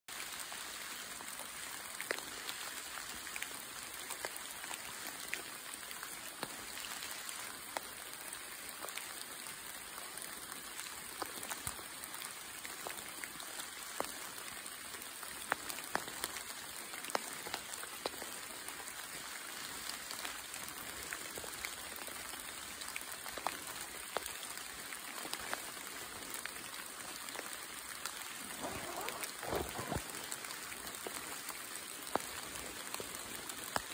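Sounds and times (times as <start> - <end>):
light rain pattering on leaves: 0.1 - 33.9
single raindrops: 26.4 - 33.9.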